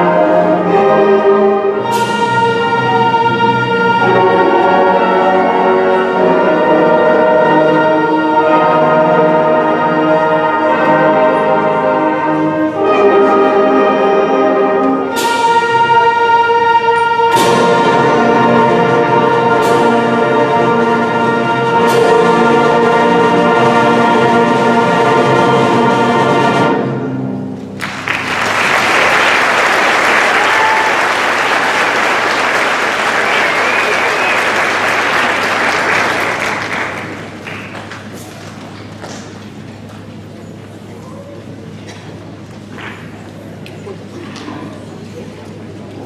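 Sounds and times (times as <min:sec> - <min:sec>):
concert band playing: 0:00.0 - 0:37.8
sharp percussion strikes: 0:01.8 - 0:03.1, 0:15.1 - 0:16.3, 0:17.2 - 0:23.6
audience applause: 0:27.8 - 0:38.9.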